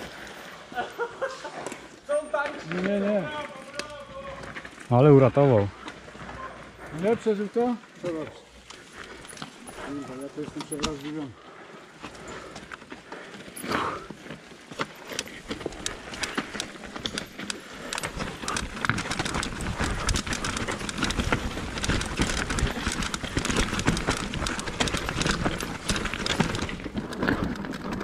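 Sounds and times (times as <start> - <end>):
mountain bike rattling and knocking: 0.8 - 28.0
tyres hammering on roots and stones: 9.9 - 11.3, 14.8 - 28.0.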